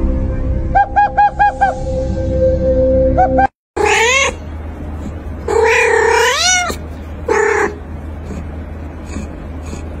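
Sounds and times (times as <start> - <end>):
steady low hum: 0.0 - 10.0
cat meowing: 3.8 - 4.4, 5.5 - 7.8.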